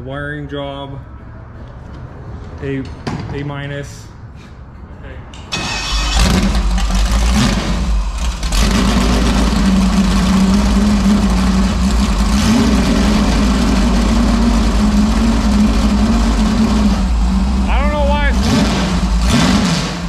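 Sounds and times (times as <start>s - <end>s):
loud vee eight engine idling: 6.1s - 20.0s.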